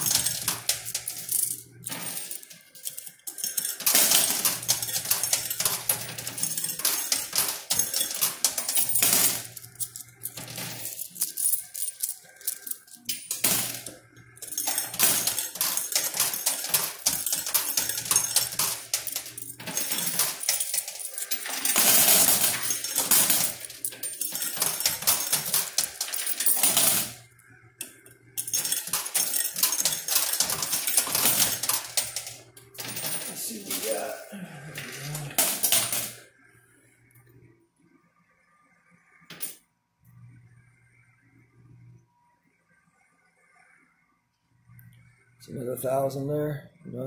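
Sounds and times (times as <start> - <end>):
coins clinking in coin pusher: 0.0 - 36.3, 39.3 - 39.6.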